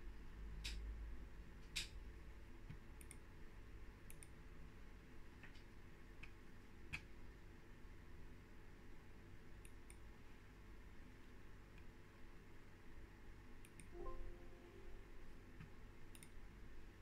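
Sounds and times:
faint low room hum: 0:00.0 - 0:17.0
computer mouse clicks: 0:02.7 - 0:03.3, 0:04.0 - 0:04.4, 0:09.6 - 0:10.1, 0:13.6 - 0:13.9, 0:16.1 - 0:16.4.

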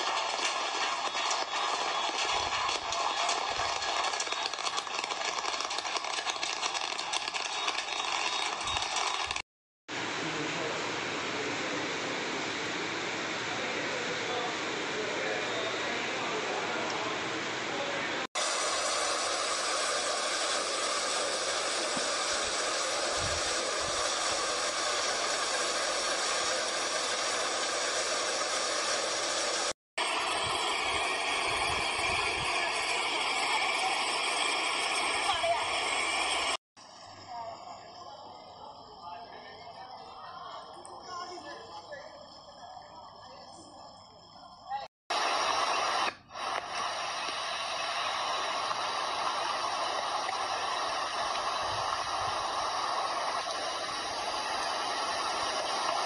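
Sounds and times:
flood water rushing: 0:47.7 - 0:56.0.

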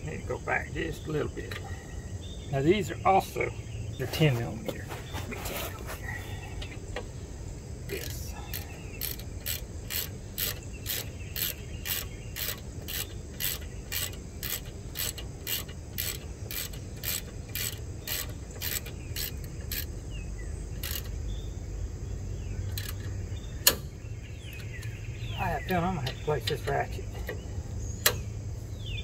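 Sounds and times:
socket ratchet clicking: 0:07.9 - 0:20.0, 0:20.7 - 0:21.2, 0:22.7 - 0:23.9.

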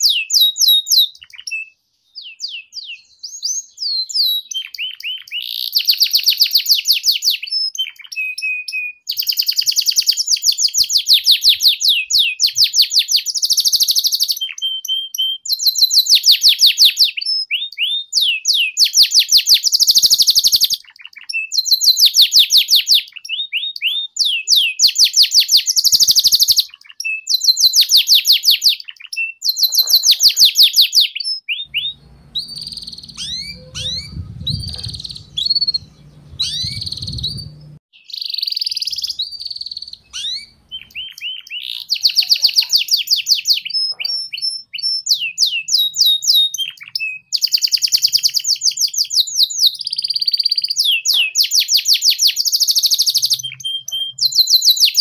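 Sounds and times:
canary singing trills: 0:00.0 - 0:55.0.

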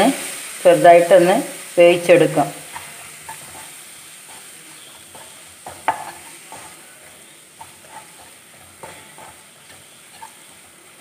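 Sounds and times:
soft sizzle: 0:00.0 - 0:11.0
spatula scraping frying pan: 0:02.6 - 0:11.0.

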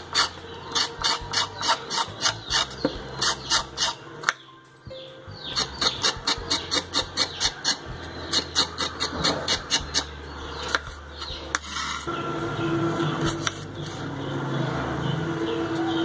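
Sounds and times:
knife scraping carrot skin: 0:00.0 - 0:04.0, 0:05.5 - 0:12.1.

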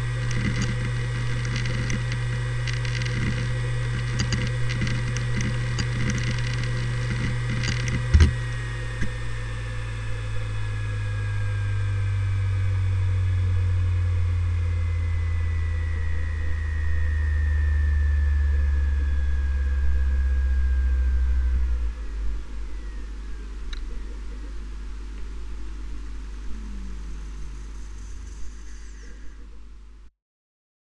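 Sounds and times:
hard drive sharp click: 0:00.0 - 0:09.3
hard drive seeking clicks: 0:00.0 - 0:17.6, 0:18.2 - 0:29.7
hard drive spindle whine: 0:00.0 - 0:30.1.

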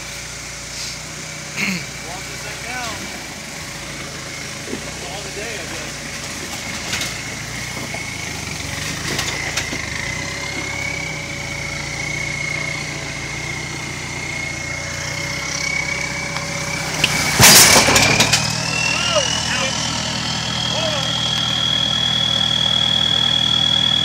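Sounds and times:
diesel engine running at low revs: 0:00.0 - 0:24.0
high turbo whistle: 0:07.2 - 0:24.0
loud crunch: 0:14.6 - 0:24.0.

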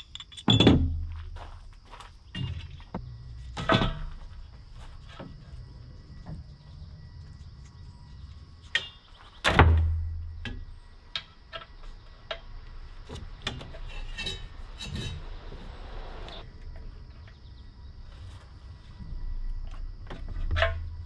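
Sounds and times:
low hum: 0:02.5 - 0:08.8, 0:12.0 - 0:21.0.

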